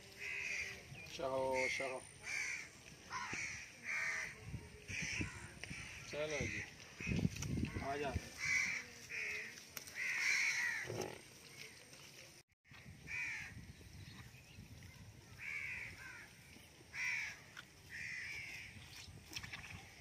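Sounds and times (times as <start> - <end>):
crows cawing: 0.2 - 0.8, 1.6 - 11.1, 13.0 - 13.5, 15.4 - 16.3, 16.9 - 18.7.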